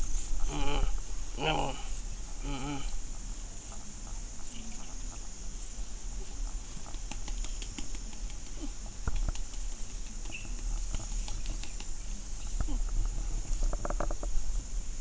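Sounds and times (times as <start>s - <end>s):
cat being scratched clicks and rustling: 6.7s - 12.1s.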